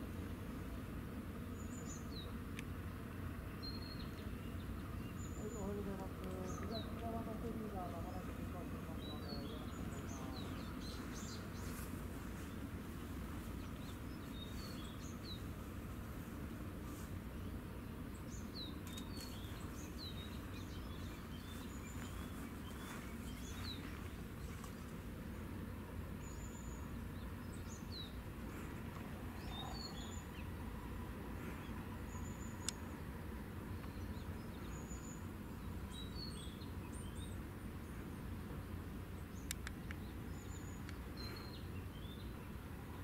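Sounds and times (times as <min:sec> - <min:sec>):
low background rumble: 0:00.0 - 0:43.0
small birds chirping: 0:00.2 - 0:43.0.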